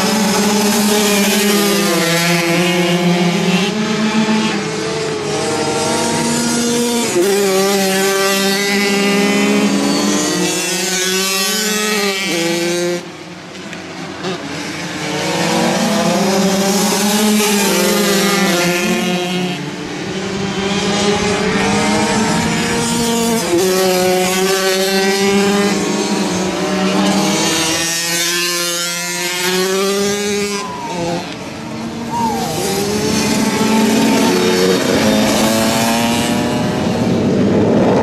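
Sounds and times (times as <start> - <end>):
racing motorcycles engines: 0.0 - 38.0.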